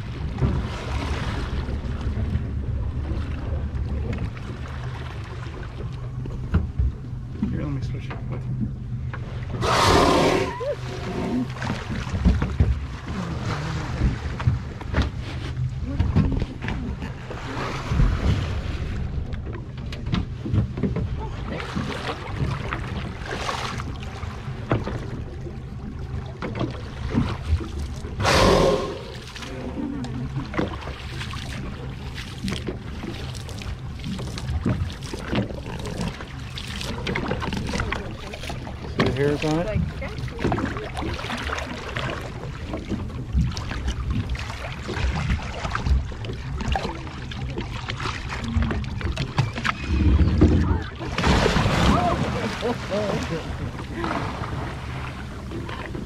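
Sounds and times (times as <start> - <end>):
wind rumble on microphone: 0.0 - 30.9, 36.9 - 56.0
water lapping against hull: 0.0 - 56.0
whale blowing rushing whoosh: 9.6 - 11.5, 28.2 - 29.3.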